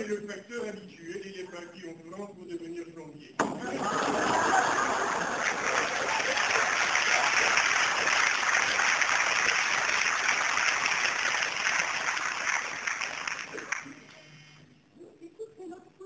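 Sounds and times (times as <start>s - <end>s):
audience applauding: 3.6s - 14.1s.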